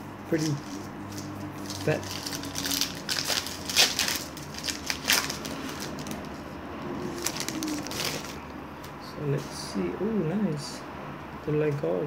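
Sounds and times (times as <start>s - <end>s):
wrapper tearing and crinkling: 0.3s - 6.5s, 7.1s - 8.4s.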